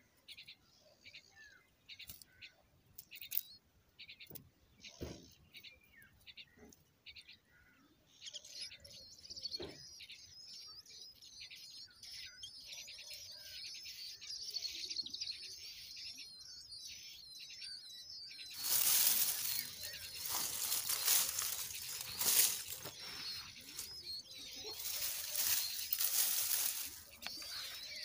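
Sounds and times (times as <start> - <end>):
nestlings chirping: 13.3 - 28.0.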